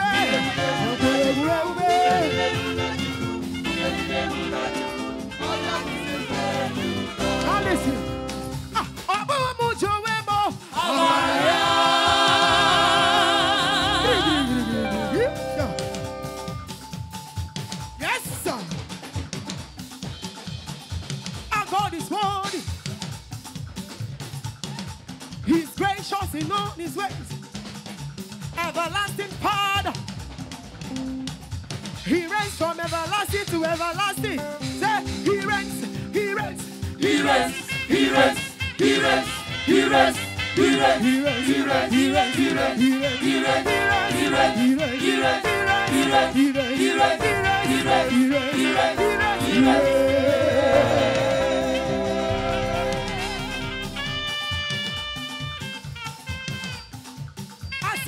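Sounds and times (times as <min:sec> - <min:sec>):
choir singing through loudspeakers: 0:00.0 - 0:08.6, 0:10.7 - 0:15.5, 0:36.5 - 0:54.1
instrumental accompaniment: 0:00.0 - 0:09.1, 0:10.8 - 0:20.9, 0:33.9 - 0:57.6
drum kit and bass beat: 0:00.0 - 0:24.3, 0:32.0 - 0:55.2
woman singing: 0:13.0 - 0:15.3.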